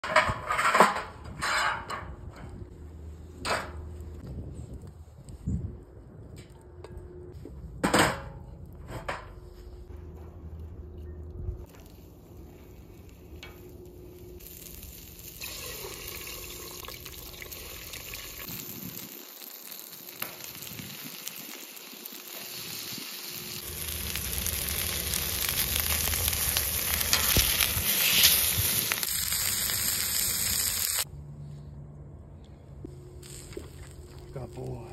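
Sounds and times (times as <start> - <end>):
food sizzling on a griddle: 14.4 - 31.1.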